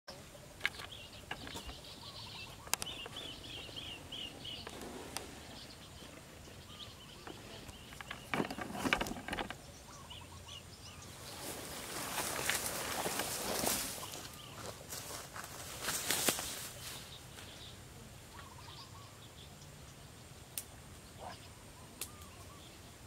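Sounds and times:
birds chirping: 0.1s - 23.0s
rustling noise: 0.6s - 6.5s, 11.2s - 17.6s.

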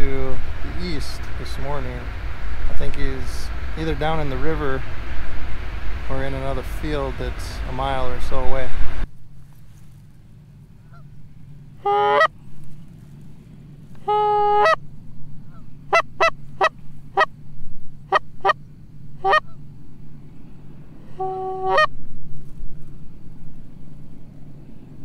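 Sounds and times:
goose call honks and clucks: 11.8s - 12.4s, 13.9s - 14.8s, 15.5s - 17.3s, 18.1s - 18.6s, 19.2s - 19.6s, 21.1s - 21.9s.

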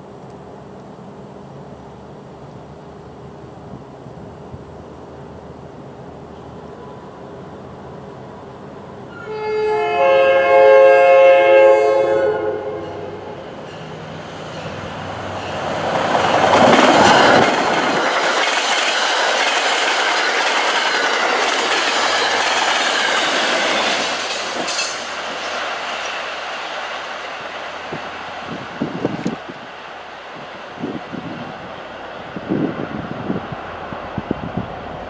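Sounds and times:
train air horn blast: 9.1s - 13.4s
train wheels clattering past: 12.8s - 28.5s.

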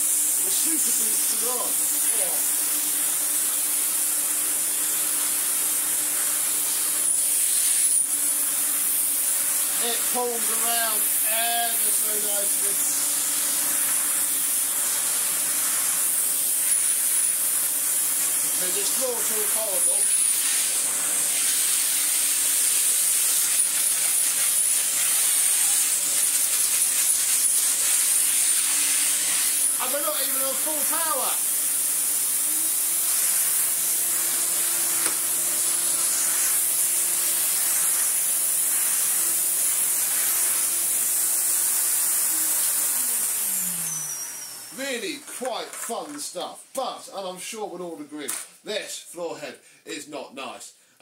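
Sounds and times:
vacuum cleaner suction hiss: 0.0s - 46.5s
vacuum floor head on carpet: 18.4s - 41.4s
high whistle: 43.7s - 44.8s.

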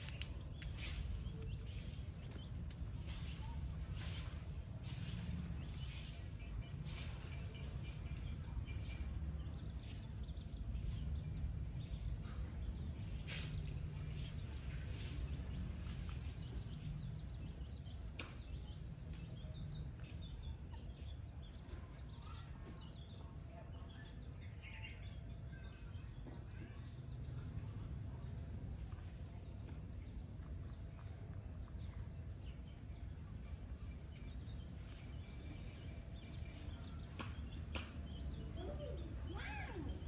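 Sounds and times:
chicken chirps and clicks: 0.0s - 4.4s, 13.1s - 26.7s, 27.8s - 39.2s
faint chick peeping: 0.0s - 40.0s.

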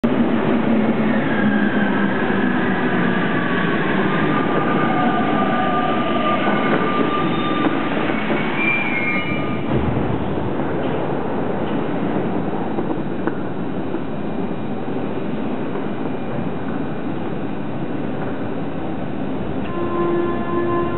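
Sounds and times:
train rumbling to a stop: 0.0s - 20.9s
train brakes squealing: 1.2s - 9.7s.

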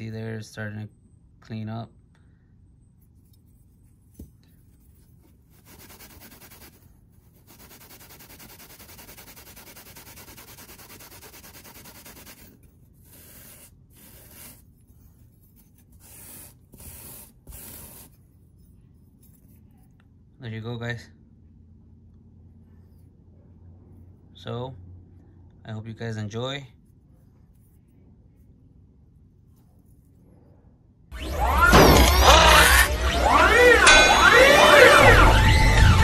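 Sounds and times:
scrubbing grill on abrasive pad: 5.5s - 6.8s, 7.4s - 14.7s.

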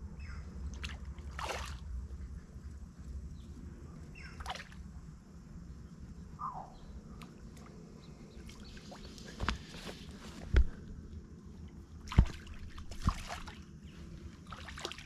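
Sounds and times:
sharp pops at water surface: 12.0s - 13.5s.

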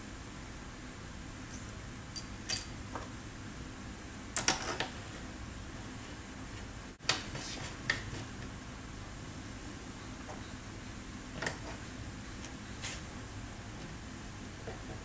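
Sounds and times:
small metal parts clicking: 1.5s - 2.8s.

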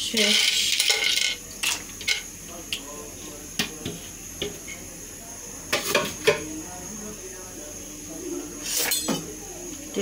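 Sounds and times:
kitchenware clinking: 0.1s - 2.3s, 5.7s - 6.5s, 8.6s - 9.4s.

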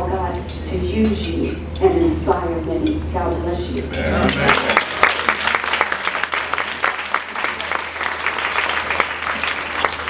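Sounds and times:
guests applauding: 4.3s - 10.0s.

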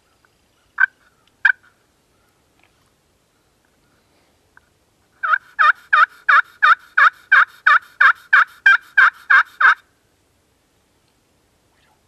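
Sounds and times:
turkey pot call yelps: 0.8s - 1.8s, 5.2s - 9.8s.

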